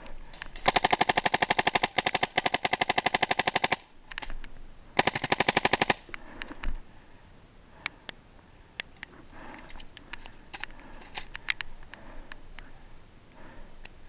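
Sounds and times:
paintball marker firing bursts: 0.3s - 4.0s, 5.0s - 6.2s.

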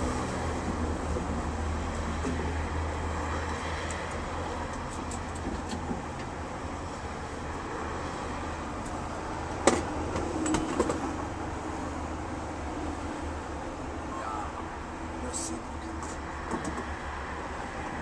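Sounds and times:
car engines humming: 0.0s - 18.0s.

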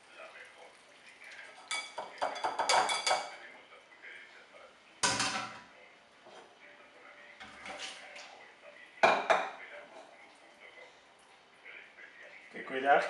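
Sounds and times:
dishes and utensils clattering: 1.5s - 3.5s, 5.0s - 6.6s, 7.4s - 8.4s, 9.0s - 10.3s.

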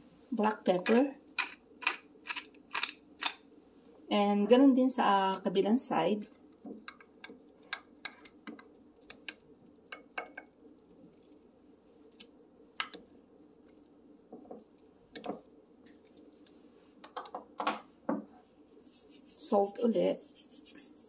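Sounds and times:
faint steady hum: 0.0s - 21.0s
fish clicking against ceramic dish: 0.8s - 3.4s.

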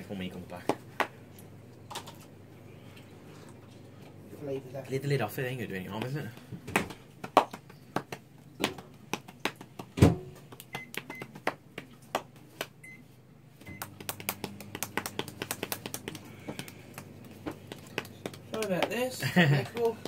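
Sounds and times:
microwave oven humming: 12.8s - 20.0s.

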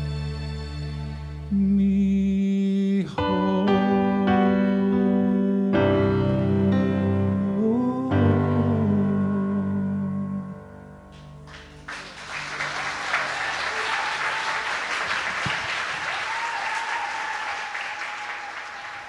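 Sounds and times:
person singing with piano: 1.5s - 11.1s
audience applause: 11.5s - 19.0s
audience cheering: 11.5s - 19.0s.

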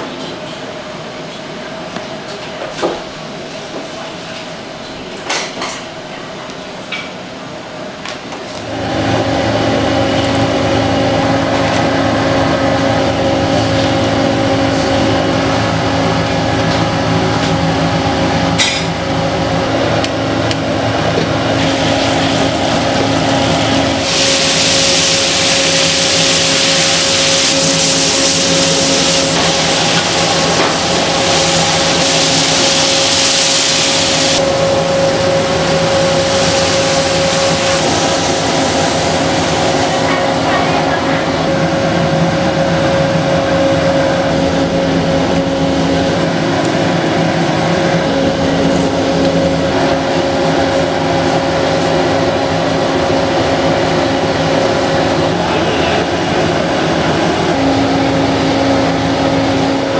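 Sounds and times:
burner and fan humming: 0.0s - 59.9s
sauce sizzling and bubbling in wok: 21.5s - 40.4s.

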